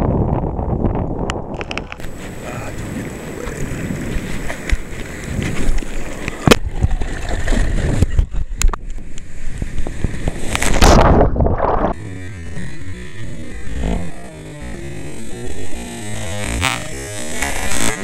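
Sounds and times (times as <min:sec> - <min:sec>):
water sloshing and splashing: 0:01.9 - 0:11.1
wave rushing over camera: 0:02.0 - 0:18.0.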